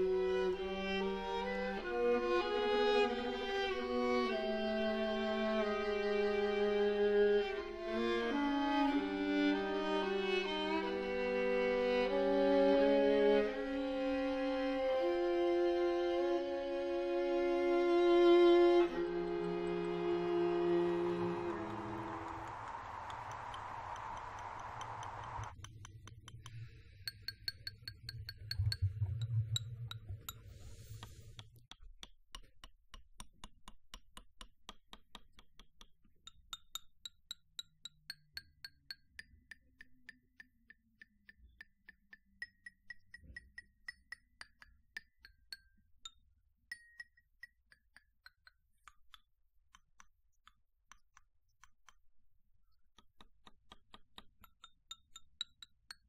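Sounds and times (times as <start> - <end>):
low hum: 18.9 - 27.0
water dripping: 20.7 - 30.4.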